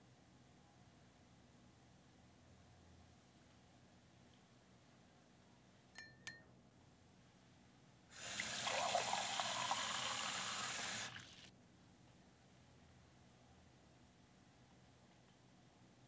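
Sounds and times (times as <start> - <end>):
tap water filling a glass: 8.2 - 11.5.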